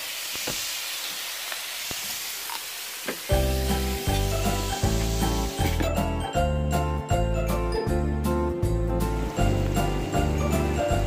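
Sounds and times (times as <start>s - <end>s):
meat sizzling on a griddle: 0.0s - 5.8s.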